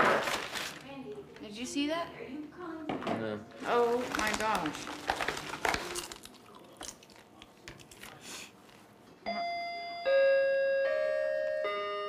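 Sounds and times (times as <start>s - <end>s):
doorbell chime: 9.3s - 12.0s.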